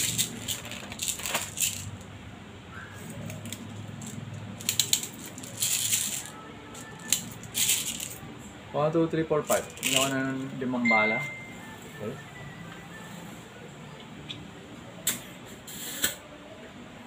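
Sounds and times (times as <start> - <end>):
plastic pellets clicking and rattling: 0.0 - 2.1, 3.3 - 8.2, 9.4 - 10.4.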